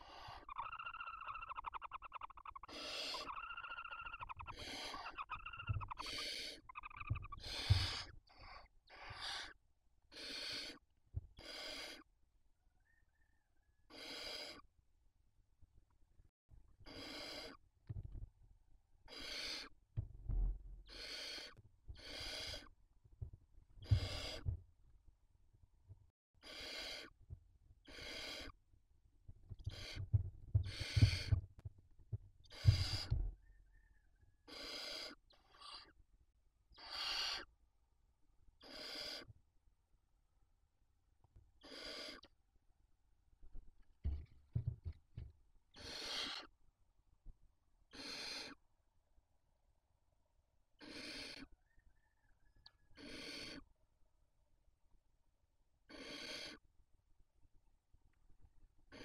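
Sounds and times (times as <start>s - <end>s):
owls hissing: 0.0s - 10.8s, 11.4s - 12.1s, 13.9s - 14.6s, 16.9s - 17.6s, 19.1s - 19.8s, 20.8s - 22.7s, 23.8s - 24.5s, 26.4s - 27.2s, 27.9s - 28.6s, 29.7s - 31.4s, 32.5s - 33.3s, 34.5s - 35.9s, 36.8s - 37.5s, 38.6s - 39.3s, 41.6s - 42.3s, 45.8s - 46.5s, 47.9s - 48.6s, 50.8s - 51.5s, 52.9s - 53.7s, 55.9s - 56.6s.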